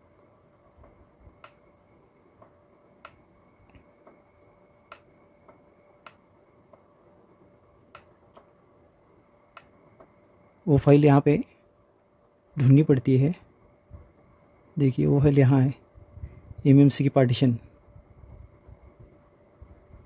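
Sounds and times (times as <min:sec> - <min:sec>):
faint electrical tone: 0:00.0 - 0:20.0
computer mouse clicks: 0:00.8 - 0:01.6, 0:02.4 - 0:04.2, 0:04.9 - 0:06.9, 0:07.9 - 0:08.6, 0:09.5 - 0:10.2.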